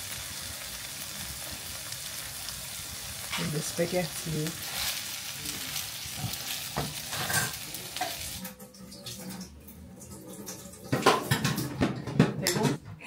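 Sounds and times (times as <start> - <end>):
food sizzling in a frying pan: 0.0 - 8.6
utensil stirring in pan: 2.9 - 8.6.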